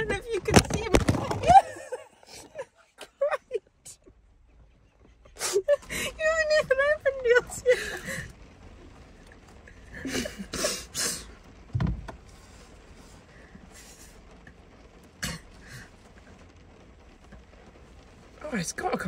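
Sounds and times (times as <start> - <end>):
low thump: 11.7 - 12.2.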